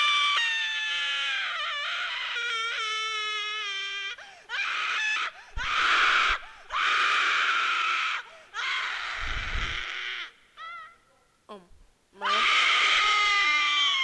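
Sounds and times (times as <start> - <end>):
woman screaming: 12.2 - 14.0.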